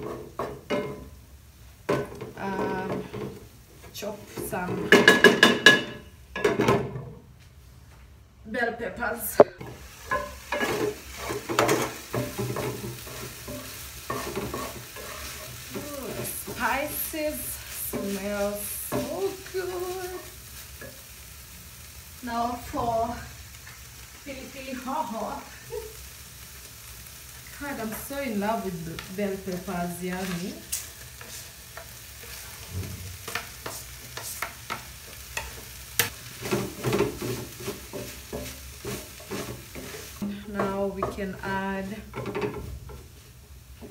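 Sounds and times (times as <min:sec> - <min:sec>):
food sizzling in a pan: 0:00.0 - 0:06.3, 0:09.4 - 0:43.9
wooden spatula scraping a pan: 0:09.6 - 0:21.0, 0:27.0 - 0:43.9
peppers sliding into a pan: 0:26.4 - 0:40.2.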